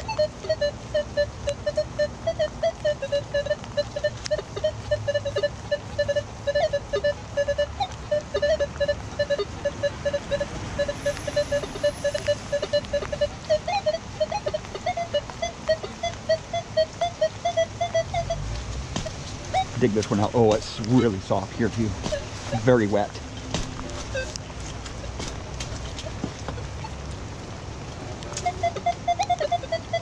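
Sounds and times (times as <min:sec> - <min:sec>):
metal detector beeping: 0:00.0 - 0:16.4, 0:22.1 - 0:23.0, 0:24.0 - 0:24.4.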